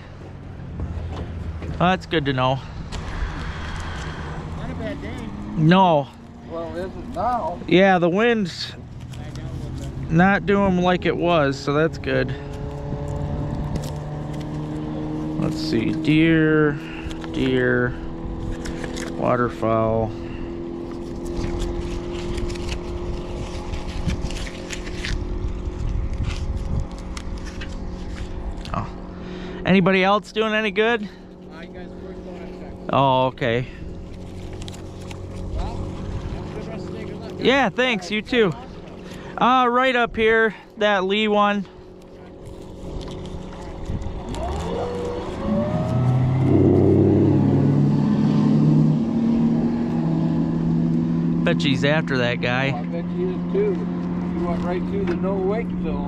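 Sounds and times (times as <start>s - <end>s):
outboard motor idling: 16.1s - 24.0s, 31.1s - 56.0s.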